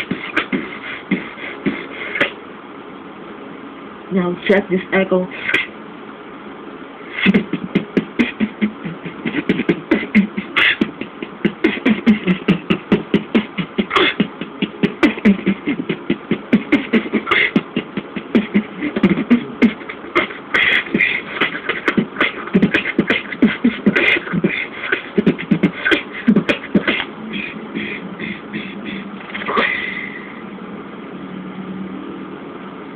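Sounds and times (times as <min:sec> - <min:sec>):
person beatboxing: 0:00.0 - 0:02.4, 0:05.3 - 0:05.8, 0:07.1 - 0:30.4.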